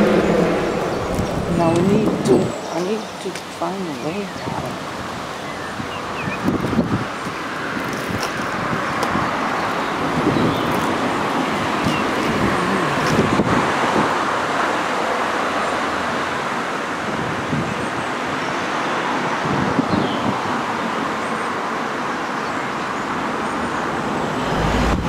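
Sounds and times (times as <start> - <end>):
passing cars rushing: 0.0 - 3.6, 23.0 - 25.0.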